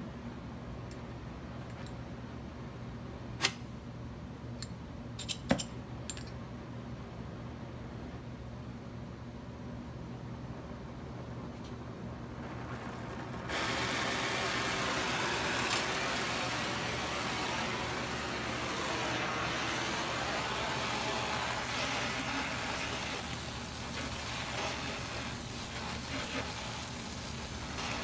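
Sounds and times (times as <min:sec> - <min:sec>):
torch flame hissing: 0:12.1 - 0:28.0.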